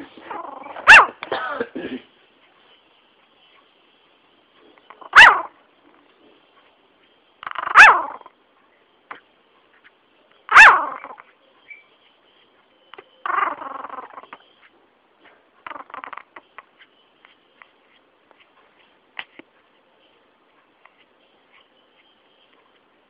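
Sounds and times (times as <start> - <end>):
puppy yipping and whining: 0.3 - 1.2, 5.0 - 5.6, 7.4 - 8.3, 10.5 - 11.8, 13.2 - 14.4, 15.6 - 16.3.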